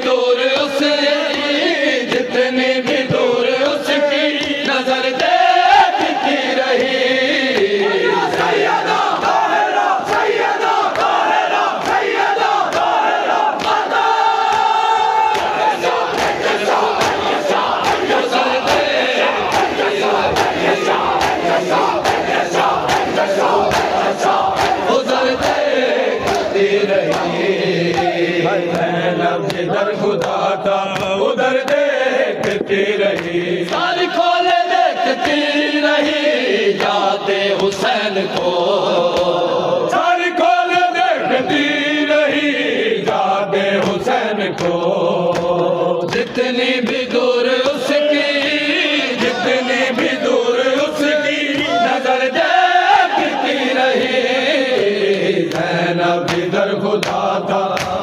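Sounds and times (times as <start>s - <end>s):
men chanting together: 0.0s - 58.0s
hand slaps on bare chests: 6.8s - 25.6s, 26.2s - 28.9s, 29.5s - 31.8s, 32.4s - 34.0s, 39.1s - 39.4s, 43.8s - 47.8s, 55.4s - 58.0s.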